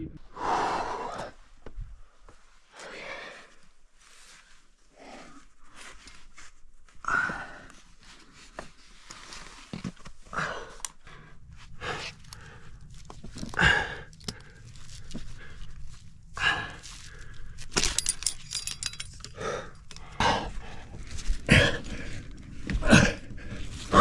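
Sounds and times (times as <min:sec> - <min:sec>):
metal climbing gear clinking: 0:13.4 - 0:15.8, 0:16.7 - 0:21.8
man breathing hard and grunting: 0:13.5 - 0:15.7, 0:16.4 - 0:17.6.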